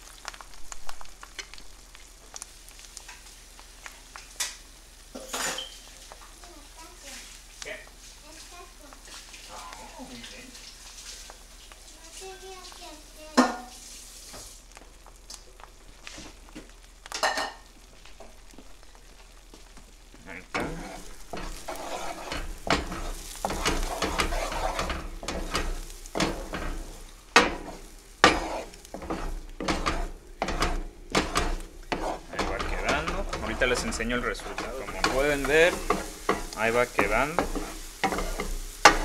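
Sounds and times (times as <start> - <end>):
eggs sizzling in frying pan: 0.0 - 39.0
wooden spatula scraping pan: 20.4 - 39.0.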